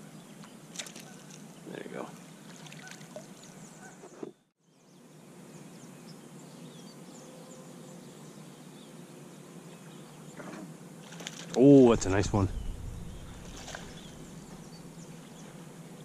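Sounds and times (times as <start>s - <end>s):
faint bird chirps: 12.0s - 15.6s.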